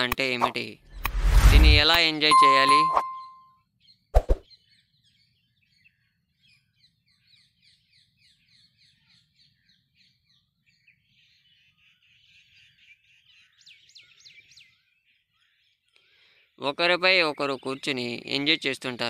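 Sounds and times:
birds chirping: 2.0 - 3.4.

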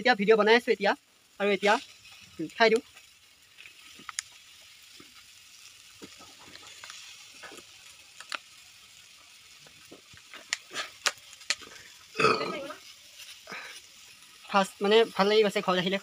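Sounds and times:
faint sizzle of frying: 0.0 - 16.0
man drinking and swallowing: 11.6 - 12.6.

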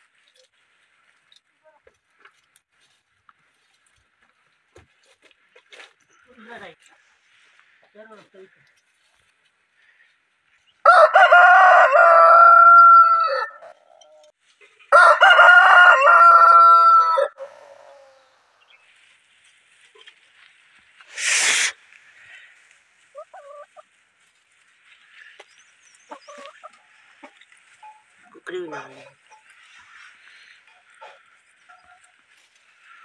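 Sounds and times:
rooster crowing: 10.8 - 13.8, 14.9 - 18.4.

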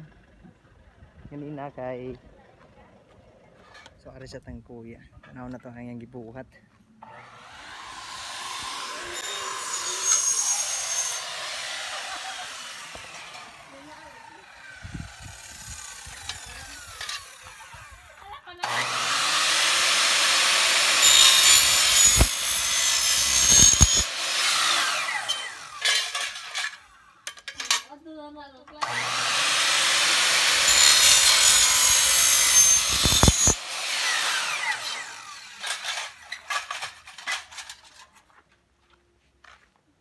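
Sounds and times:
electric power saw cutting: 7.0 - 27.4, 28.8 - 37.0.

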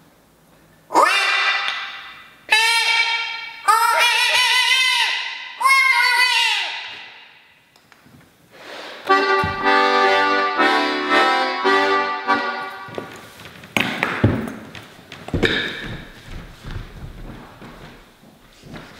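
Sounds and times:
button accordion chords: 9.0 - 13.1
knocks: 13.8 - 16.8.

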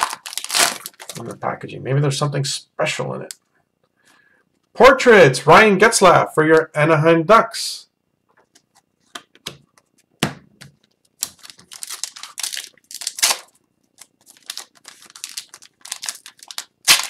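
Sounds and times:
plastic wrapper crinkling and tearing: 0.0 - 1.4, 10.8 - 17.0.

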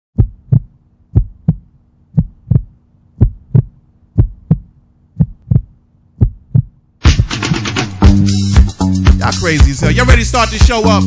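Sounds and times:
faint steady hum: 0.2 - 7.0
heartbeat thumps: 0.2 - 8.7.

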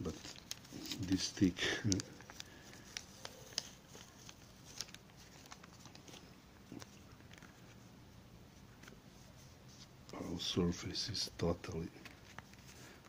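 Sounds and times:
sticker peeling paper crackle: 0.0 - 7.8.

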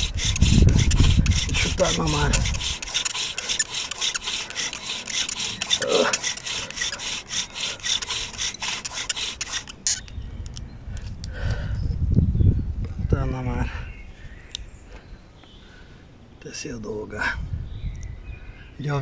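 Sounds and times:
bow drill spindle grinding wood: 0.0 - 10.0.

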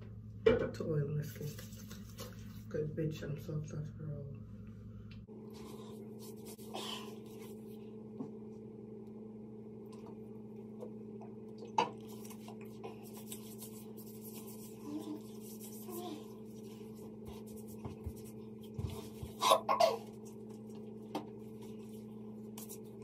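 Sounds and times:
low electrical hum: 0.0 - 23.0
hands rubbing oil into skin: 12.1 - 19.0.

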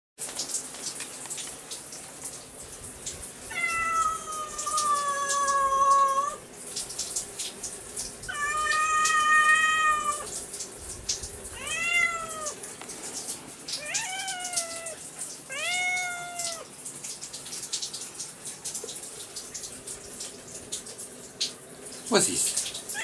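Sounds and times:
cat meowing: 3.5 - 6.4, 8.3 - 10.4, 11.5 - 12.6, 13.7 - 16.7.

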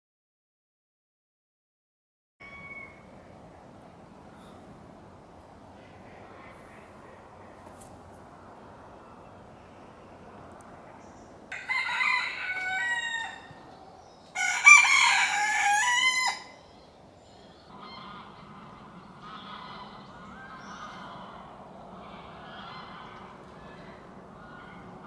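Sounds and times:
rooster crowing: 2.4 - 3.1, 11.5 - 16.6
fainter bird calls: 16.4 - 25.0.

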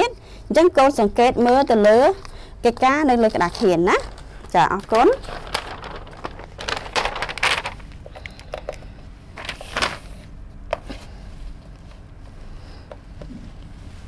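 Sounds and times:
paper sheet rustling: 3.1 - 7.9, 9.4 - 11.2.

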